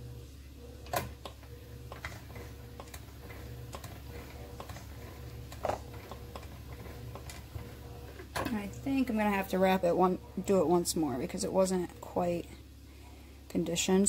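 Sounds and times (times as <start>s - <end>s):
pasta machine ticks and clicks: 0.8s - 9.0s.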